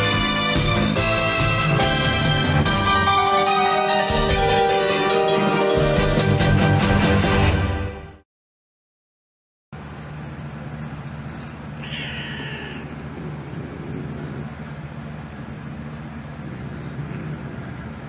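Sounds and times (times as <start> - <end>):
steady low hum: 9.8 - 18.0
cat meowing: 11.8 - 13.0.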